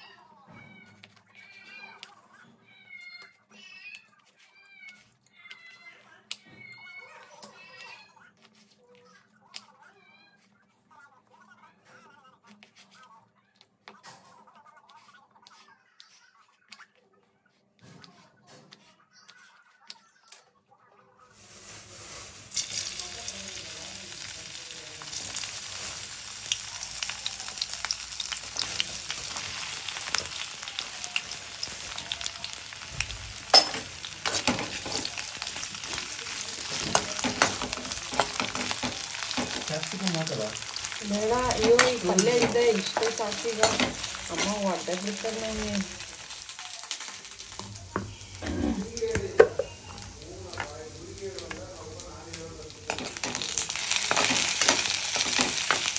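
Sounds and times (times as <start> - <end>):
vegetables sizzling in hot oil: 21.3 - 55.9.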